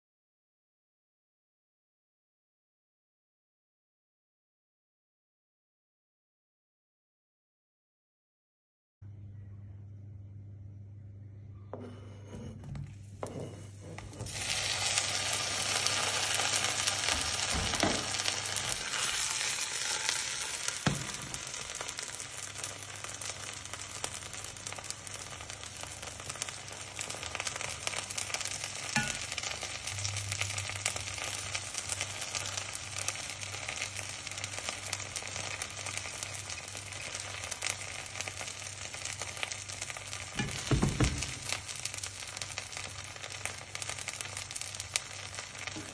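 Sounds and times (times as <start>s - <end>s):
food sizzling in frying pan: 14.0s - 45.9s
spoon clinking: 29.0s - 29.3s.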